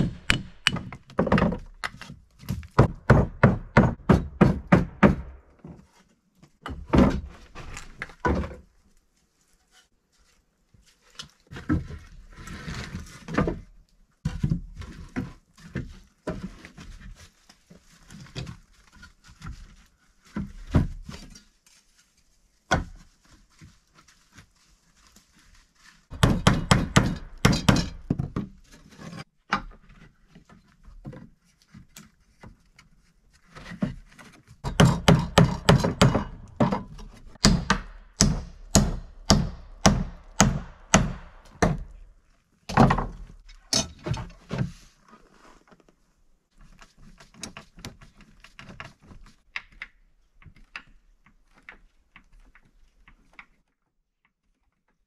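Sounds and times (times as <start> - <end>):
wooden knocks: 0.0 - 5.8, 34.6 - 42.0.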